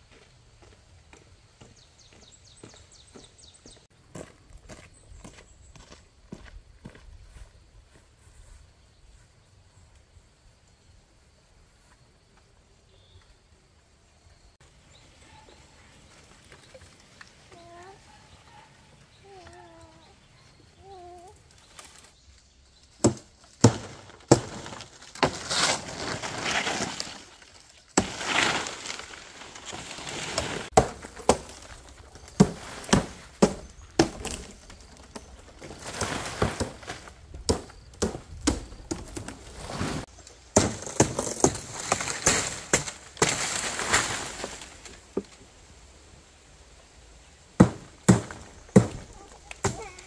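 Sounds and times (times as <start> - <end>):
palm leaves rustling: 14.6 - 50.0
blade chopping palm stalks: 23.0 - 44.9, 47.6 - 50.0.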